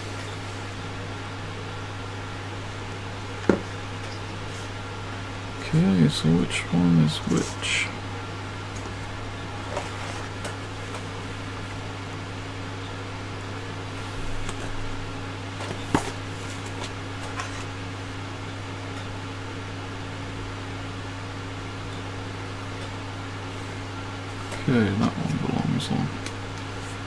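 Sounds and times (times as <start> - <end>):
low background hum: 0.0 - 27.0
paper rustling: 15.6 - 17.8.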